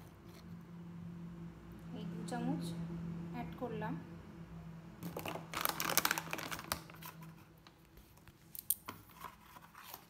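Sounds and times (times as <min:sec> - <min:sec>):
plastic containers clicking: 0:05.0 - 0:07.0
plastic crinkling: 0:05.0 - 0:10.0.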